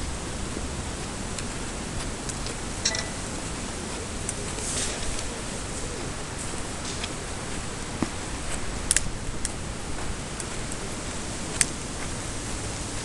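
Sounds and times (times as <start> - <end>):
outdoor background hiss: 0.0 - 13.0
faint sharp clicks: 8.9 - 9.6.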